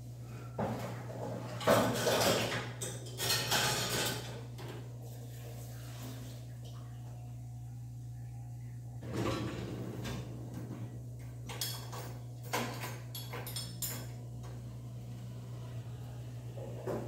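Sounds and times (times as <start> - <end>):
dishwasher rack rolling: 0.6 - 6.0, 9.0 - 17.0
dishes and cups clinking: 11.5 - 14.2.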